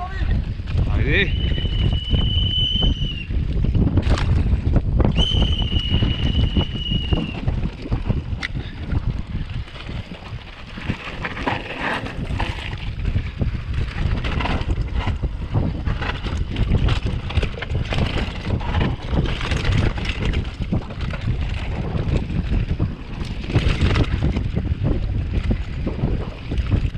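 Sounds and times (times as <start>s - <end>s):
bike rattling and clicking: 0.0s - 26.9s
wind buffeting microphone: 0.0s - 26.9s
high steady squeal: 1.0s - 3.3s, 5.1s - 7.4s
tyres rumbling over dirt and rock: 3.7s - 26.9s.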